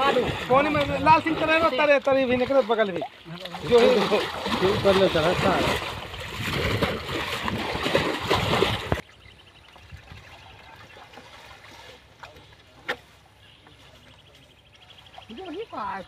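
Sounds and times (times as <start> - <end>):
water splashing and churning: 0.0 - 16.0
people calling: 10.4 - 16.0.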